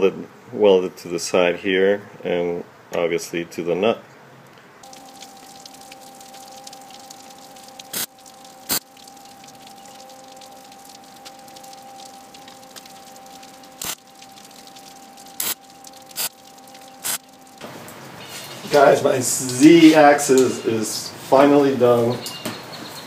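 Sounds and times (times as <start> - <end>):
welding arc crackle and spatter: 4.8 - 17.3
welder hum and hiss: 7.8 - 8.9, 13.8 - 14.0, 15.4 - 16.3, 17.0 - 17.2.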